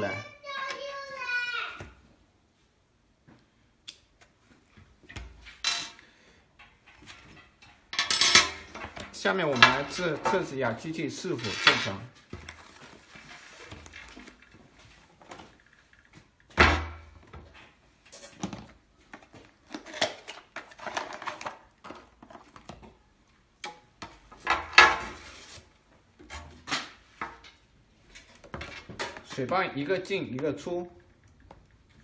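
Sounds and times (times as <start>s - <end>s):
rustling: 11.2s - 16.3s
plastic hoses clattering: 17.3s - 23.0s.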